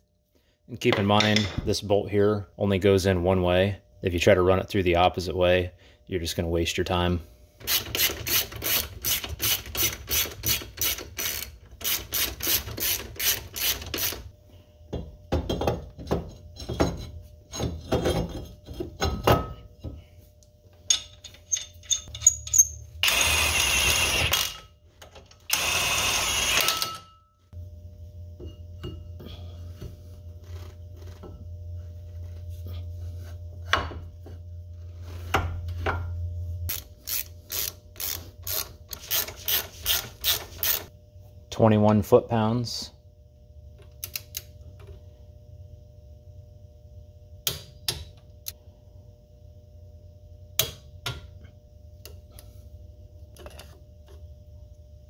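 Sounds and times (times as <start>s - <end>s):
low steady hum: 0.0s - 55.0s
ratchet wrench clicking: 7.7s - 14.2s, 36.7s - 40.9s
power tool bursts: 25.5s - 26.9s.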